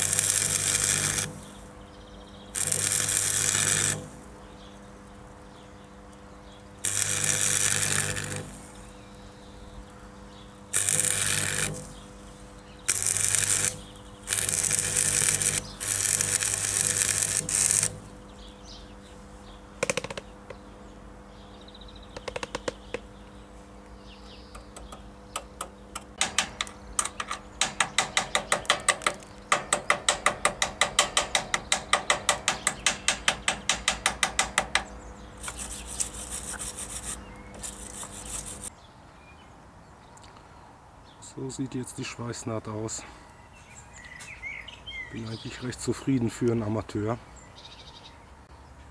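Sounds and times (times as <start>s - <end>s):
scraping of weld: 0.0s - 1.7s, 2.6s - 4.2s, 6.8s - 8.9s, 10.7s - 12.2s, 12.9s - 18.2s, 26.2s - 38.7s
arc welding crackling: 0.0s - 5.2s, 6.1s - 9.0s, 10.5s - 18.7s, 24.7s - 38.7s
electrical hum: 0.0s - 38.7s.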